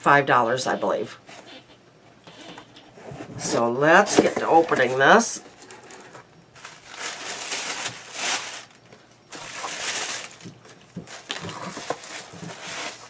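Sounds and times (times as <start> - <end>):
packaging rustling and crinkling: 3.1 - 13.0.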